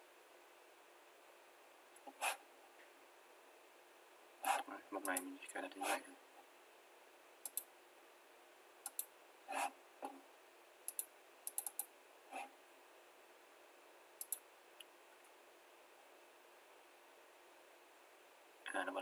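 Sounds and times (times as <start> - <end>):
computer mouse clicks: 4.4 - 5.3, 7.4 - 7.7, 8.8 - 9.1, 10.9 - 11.9, 14.2 - 14.9.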